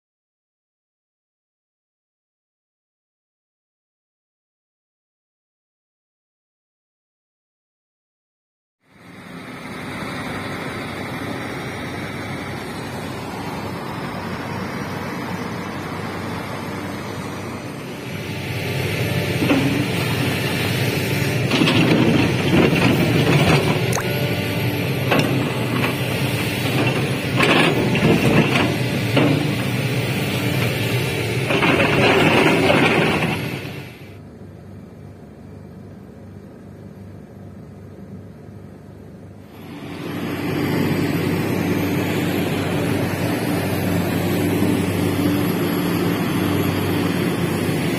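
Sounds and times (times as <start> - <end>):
excavator diesel engine under load: 8.9 - 34.3, 39.4 - 47.9.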